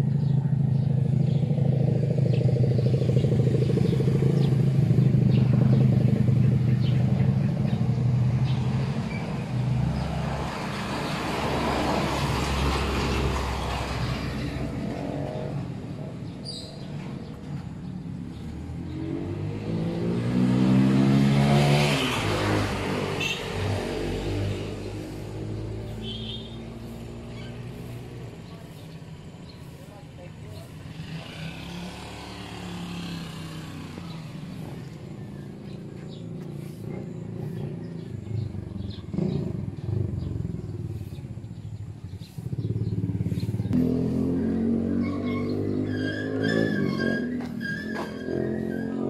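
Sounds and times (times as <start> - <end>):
vehicle engine humming: 0.0 - 49.0
engine speeding up: 18.1 - 28.5, 30.8 - 49.0.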